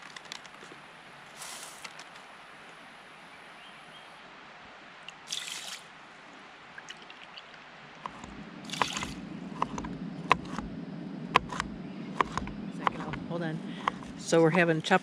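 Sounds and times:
water pouring into a pot: 5.3 - 5.8
knife chopping on a cutting board: 11.4 - 13.2, 13.8 - 14.6.

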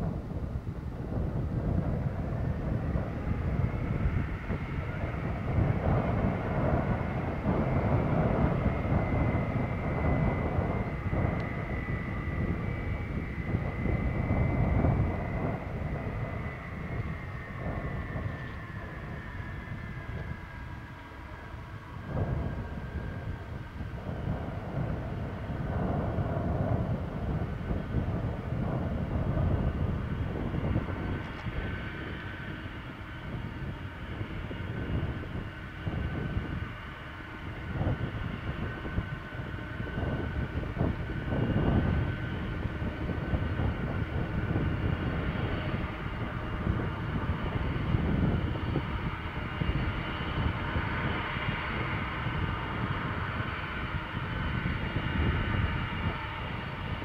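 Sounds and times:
faint high whine: 0.0 - 57.0
jet engines low rumble: 0.0 - 57.0.

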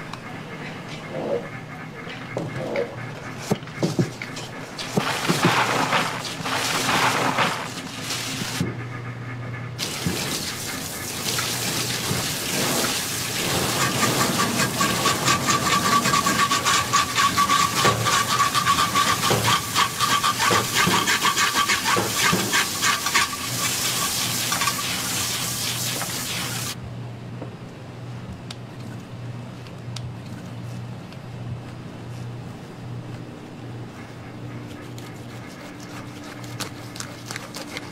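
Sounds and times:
water spraying into a sink: 9.8 - 26.8
hands rubbing fish: 34.6 - 37.9.

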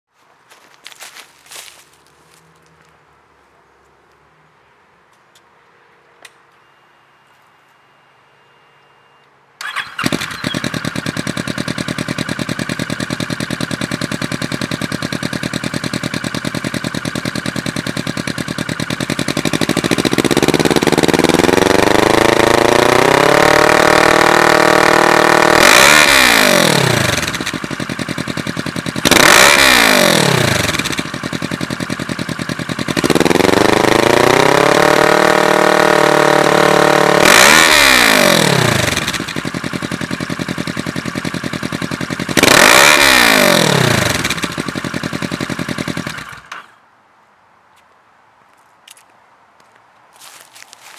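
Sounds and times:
motorcycle engine idling and revving: 9.6 - 46.8.

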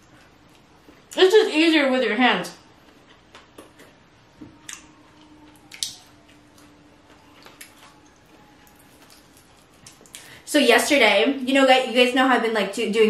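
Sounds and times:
wet chewing: 2.8 - 4.0, 4.6 - 10.3.

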